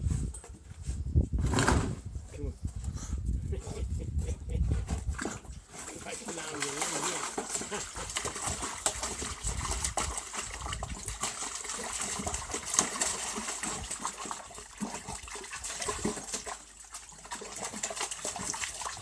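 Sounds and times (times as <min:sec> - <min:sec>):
dog splashing in water: 0:06.0 - 0:19.0.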